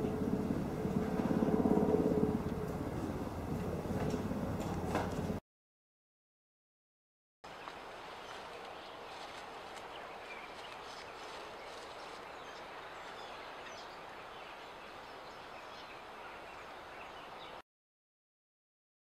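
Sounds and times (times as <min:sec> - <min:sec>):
outdoor background noise: 0:00.0 - 0:05.4, 0:07.5 - 0:17.6.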